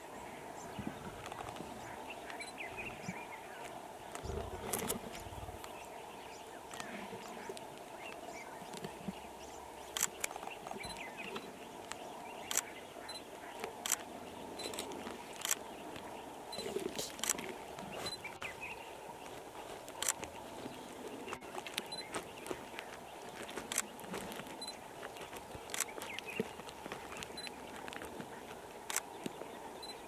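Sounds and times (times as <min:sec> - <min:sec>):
lions chewing bone: 0:13.5 - 0:29.6.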